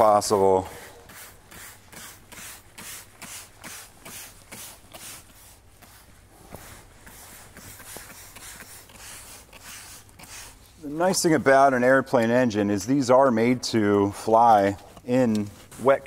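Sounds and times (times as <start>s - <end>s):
spray bottle squirting: 0.8s - 10.7s.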